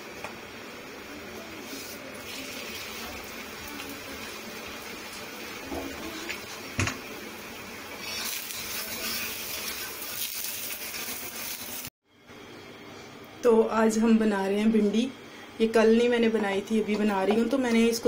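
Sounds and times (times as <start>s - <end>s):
flatbread hissing on griddle: 7.9s - 11.9s.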